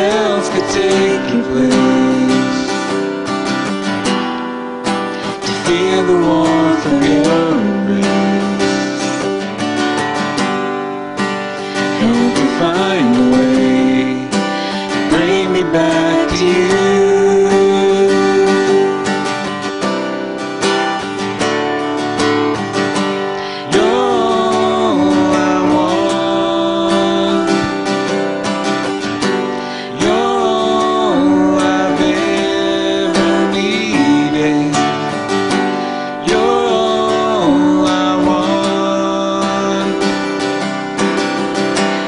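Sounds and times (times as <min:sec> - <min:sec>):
man and woman singing: 0:00.0 - 0:03.0, 0:05.2 - 0:09.4, 0:11.6 - 0:19.6, 0:23.2 - 0:28.3, 0:29.4 - 0:40.6
strummed acoustic guitar: 0:00.0 - 0:42.0.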